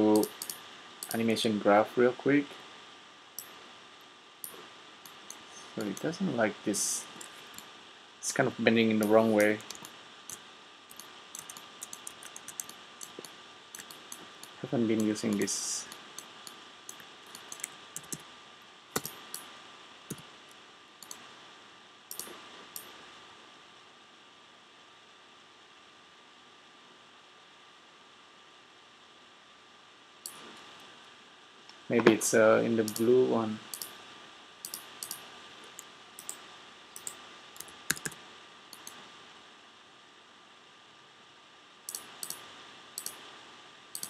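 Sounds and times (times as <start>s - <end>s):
faint steady hiss: 0.0s - 44.0s
mouse and keyboard clicks: 0.2s - 1.2s, 9.0s - 18.2s, 19.0s - 19.5s, 22.1s - 22.9s, 33.7s - 34.0s, 34.6s - 36.4s, 37.0s - 38.2s, 41.9s - 42.4s, 43.0s - 43.2s.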